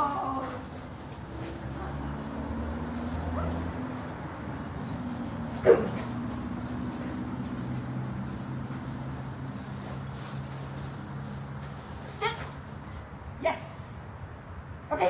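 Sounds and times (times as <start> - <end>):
dog yipping: 5.6 - 6.3.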